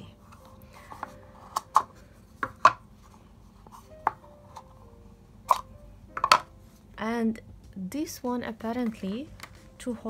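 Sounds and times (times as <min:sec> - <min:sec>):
plastic palette clicks and knocks: 0:05.5 - 0:06.5.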